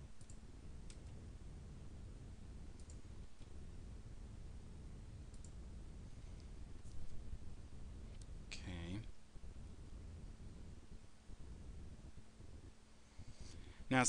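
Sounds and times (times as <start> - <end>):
low room hum: 0.0 - 14.0
computer mouse clicks: 0.2 - 1.2, 2.7 - 3.6, 5.3 - 5.6.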